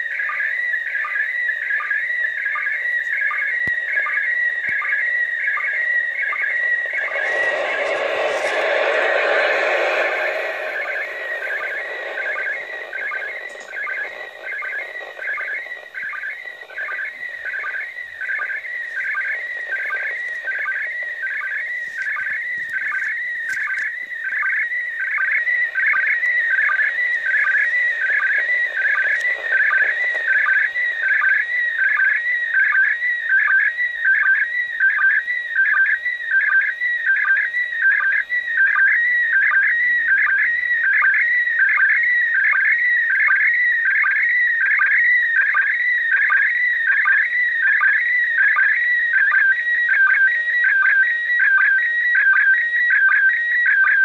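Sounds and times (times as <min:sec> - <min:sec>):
warbling electronic tone: 0:03.8 - 0:33.7.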